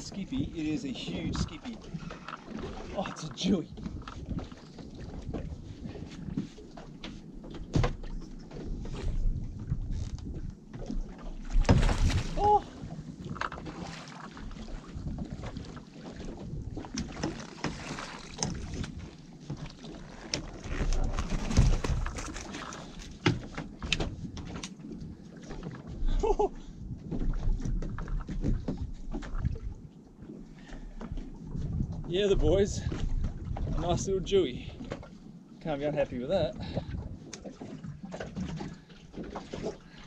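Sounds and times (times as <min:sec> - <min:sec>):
wind buffeting microphone: 0:00.0 - 0:06.7, 0:07.6 - 0:13.8, 0:14.5 - 0:17.4, 0:31.1 - 0:35.0, 0:35.9 - 0:39.9.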